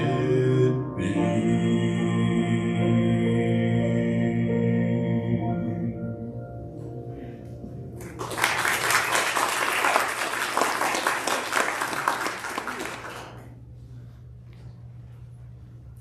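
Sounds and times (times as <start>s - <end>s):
congregation applauding: 8.0s - 13.6s.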